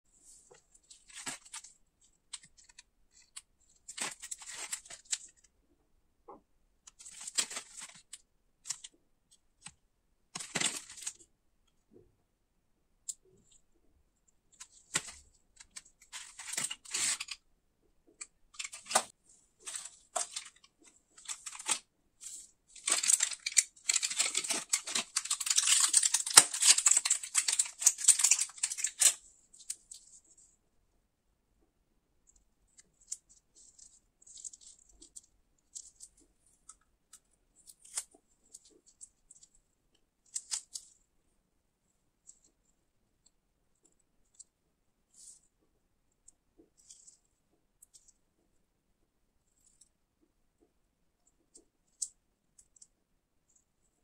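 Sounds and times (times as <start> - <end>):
foil crinkling and tearing: 22.8 - 29.2
packaging rustles and taps: 22.8 - 29.2.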